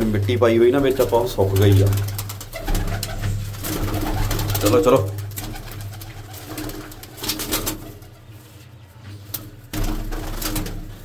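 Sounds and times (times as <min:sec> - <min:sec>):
pigeons cooing: 0:00.0 - 0:08.6
rustling bursts: 0:00.0 - 0:11.0.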